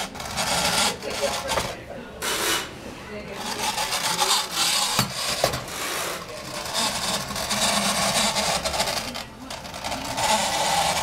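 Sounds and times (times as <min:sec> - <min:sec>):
clockwork motor whirring: 0:06.6 - 0:11.0.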